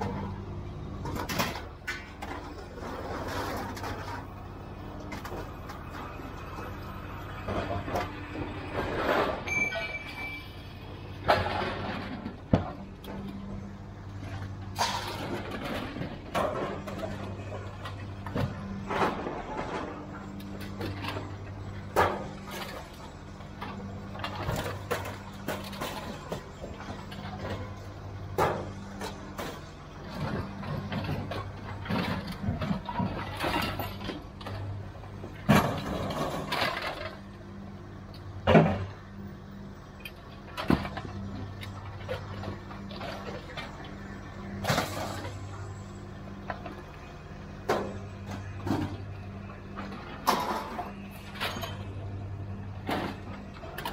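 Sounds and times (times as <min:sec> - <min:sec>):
scrap metal clanking onto pile: 0:01.0 - 0:04.4, 0:08.7 - 0:10.5, 0:11.2 - 0:13.3, 0:14.3 - 0:23.0, 0:23.6 - 0:34.8, 0:35.4 - 0:37.2, 0:44.4 - 0:45.8, 0:49.8 - 0:51.9.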